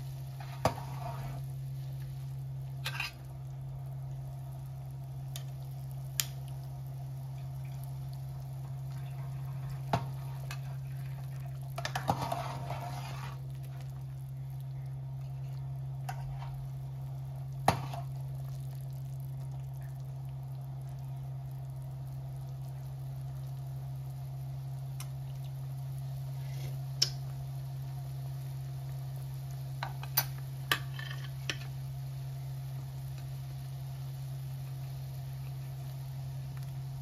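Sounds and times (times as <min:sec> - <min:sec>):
soup simmering in pot: 0:00.0 - 0:37.0
steady low hum: 0:00.0 - 0:37.0
splashing and stirring broth: 0:05.2 - 0:21.0.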